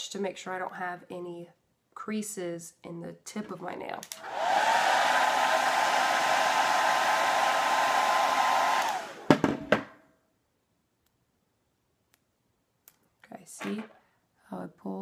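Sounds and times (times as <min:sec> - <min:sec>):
blow dryer running: 0:04.2 - 0:09.4.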